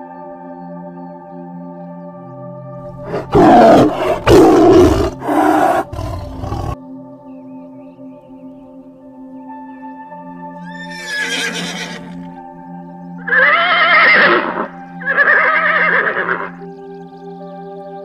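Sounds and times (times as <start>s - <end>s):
ambient music: 0.0s - 18.0s
horse whinnying: 3.1s - 6.8s, 10.6s - 12.3s, 13.2s - 16.5s.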